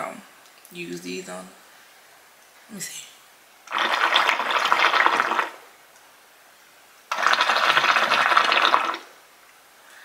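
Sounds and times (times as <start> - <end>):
water bubbling in hookah: 3.7 - 5.7, 7.1 - 9.2.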